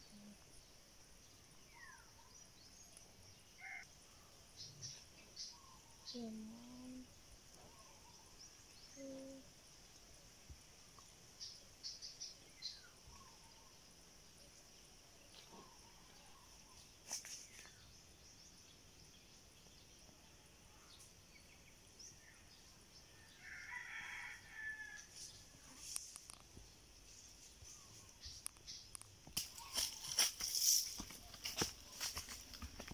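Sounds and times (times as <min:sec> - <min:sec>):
faint rooster crowing: 0:23.1 - 0:25.8.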